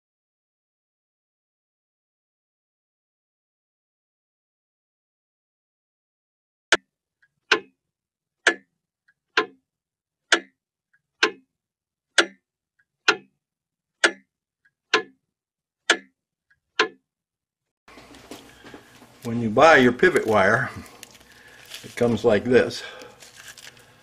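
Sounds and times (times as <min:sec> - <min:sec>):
clock ticking: 0:07.5 - 0:07.8, 0:08.4 - 0:09.6, 0:10.2 - 0:11.5, 0:12.1 - 0:13.4, 0:14.0 - 0:15.2, 0:15.8 - 0:17.0
faint clock click: 0:08.4 - 0:08.7, 0:09.4 - 0:09.6, 0:10.3 - 0:10.6, 0:11.2 - 0:11.4, 0:12.2 - 0:12.4, 0:13.1 - 0:13.3, 0:14.0 - 0:14.3, 0:14.9 - 0:15.2, 0:15.9 - 0:16.1, 0:16.8 - 0:17.0.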